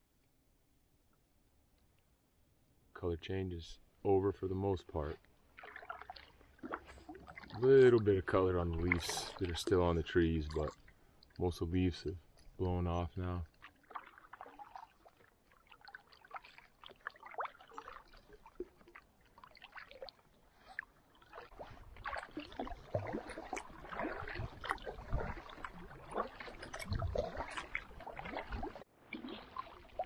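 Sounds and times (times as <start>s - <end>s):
water lapping around canoe: 4.3s - 30.0s
paddle splashing: 4.8s - 30.0s
water dripping off paddle: 5.1s - 30.0s.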